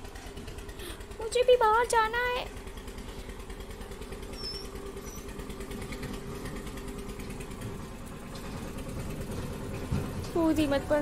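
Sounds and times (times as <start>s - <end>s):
engine-like mechanical hum: 0.0s - 11.0s.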